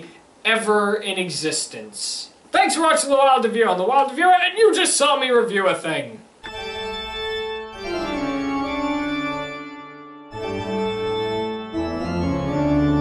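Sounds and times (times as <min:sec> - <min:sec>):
organ playing held chords: 0:06.4 - 0:13.0.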